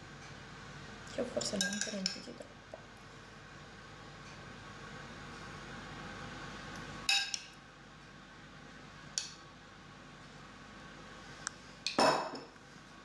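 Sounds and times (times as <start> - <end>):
faint steady hum: 0.0 - 13.0
metal spoon clinking on glass bowl: 1.6 - 2.2.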